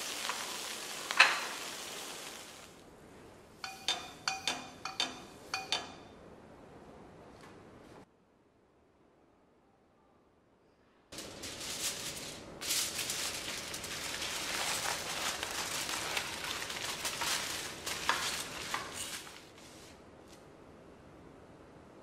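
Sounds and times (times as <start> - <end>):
food sizzling in hot oil: 0.0 - 2.8.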